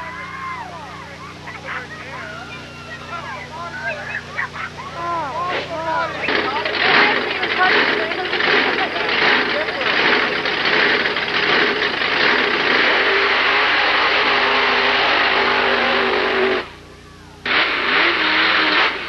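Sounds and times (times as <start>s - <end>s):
engine running hard: 0.0s - 19.0s.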